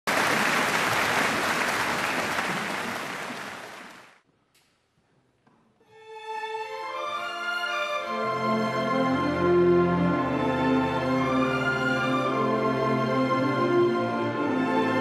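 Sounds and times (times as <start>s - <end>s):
audience applause: 0.0s - 4.2s
orchestra holding notes: 5.9s - 15.0s.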